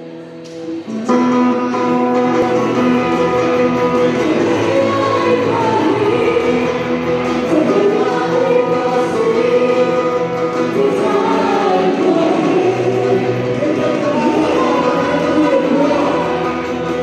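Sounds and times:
acoustic guitar: 0.0 - 17.0
keyboard: 0.0 - 17.0
congregation singing: 2.4 - 17.0.

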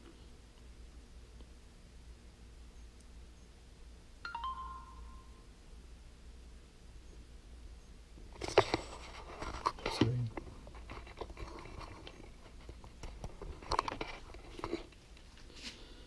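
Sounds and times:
wires rustling and scraping: 8.3 - 15.8.

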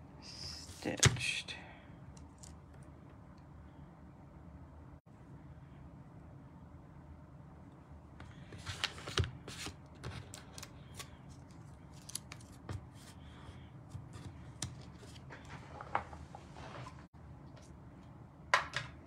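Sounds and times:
paper rustling and clicking: 8.6 - 12.8.

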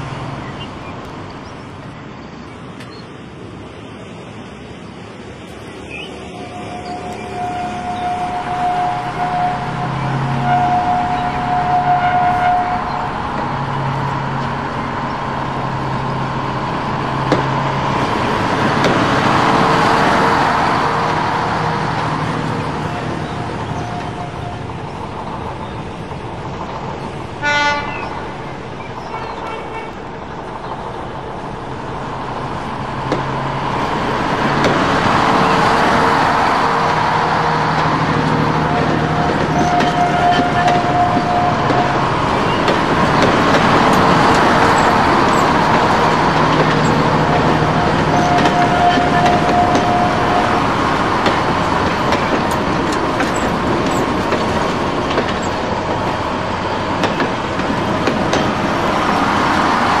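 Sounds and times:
vehicles passing: 0.0 - 60.0
car horn: 6.3 - 13.1, 27.4 - 28.2, 29.1 - 30.0, 38.5 - 42.8, 44.3 - 52.3.

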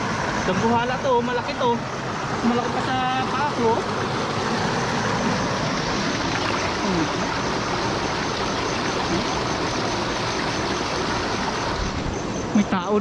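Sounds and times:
shallow stream running: 0.0 - 13.0.

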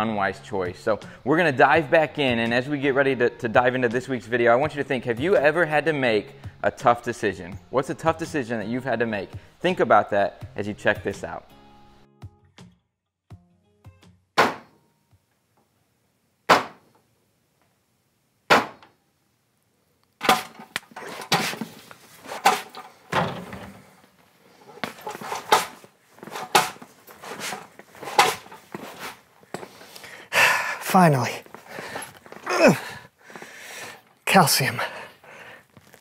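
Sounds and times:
sharp knocks: 16.5 - 16.8, 18.5 - 18.9.

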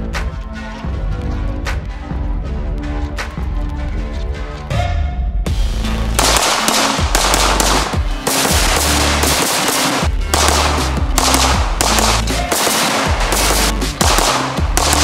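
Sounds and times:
background music with bass line: 0.0 - 15.0
rifle rapid-fire bursts: 6.2 - 15.0.

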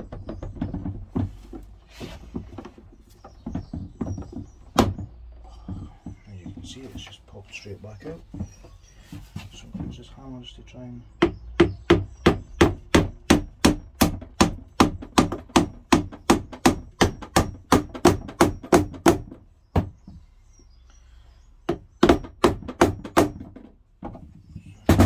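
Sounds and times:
hammer tapping on plastic: 11.2 - 20.2.

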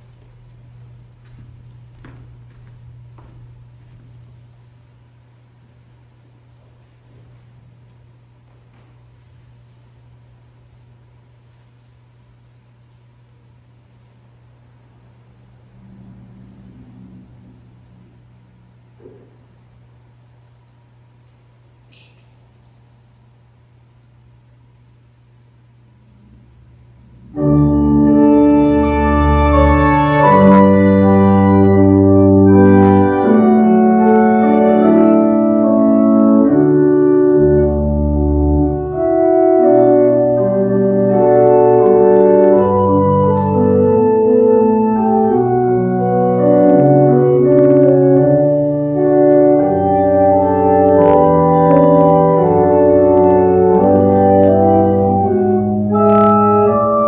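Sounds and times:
organ playing sustained chords: 0.0 - 9.2, 15.1 - 19.4, 26.1 - 57.0.

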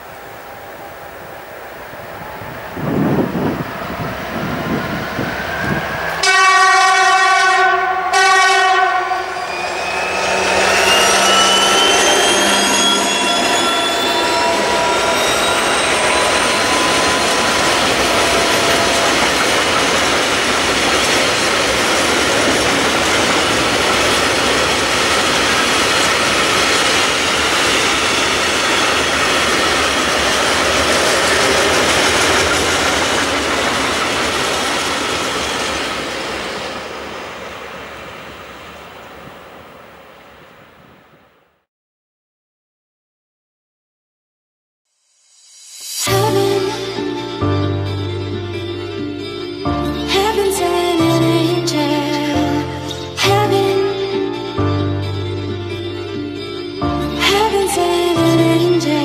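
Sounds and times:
train wheels rumbling on rails: 0.0 - 40.4
locomotive whine: 0.0 - 41.2, 45.6 - 59.0
train horn: 2.8 - 20.8.

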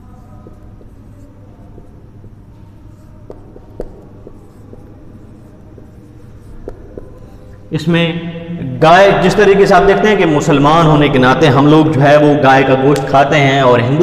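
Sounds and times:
marker scratching on whiteboard: 0.0 - 7.7
steady low hum: 0.0 - 12.8.

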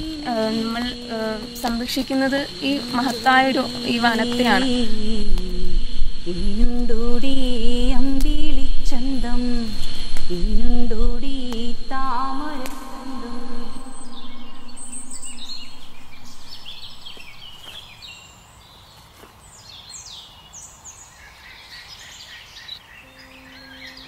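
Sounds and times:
low hummed note: 0.0 - 17.8, 23.0 - 24.0
background hiss: 0.0 - 24.0
birds chirping and calling: 13.8 - 18.4, 19.8 - 24.0.

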